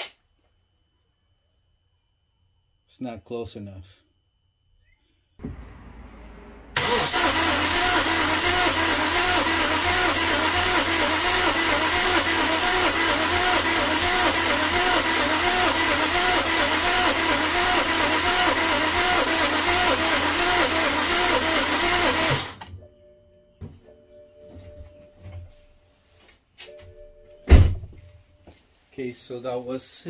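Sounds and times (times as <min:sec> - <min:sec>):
starter motor cranking engine: 0:06.4 - 0:22.6.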